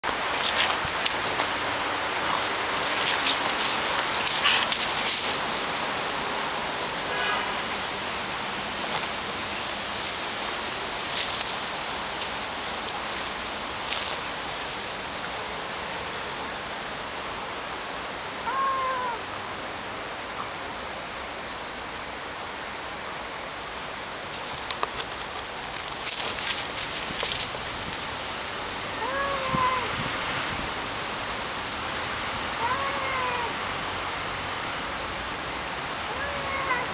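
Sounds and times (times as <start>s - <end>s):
steady hiss: 0.0s - 32.7s
cat yowling: 18.4s - 19.2s, 29.0s - 30.0s, 32.6s - 33.6s, 36.1s - 36.9s.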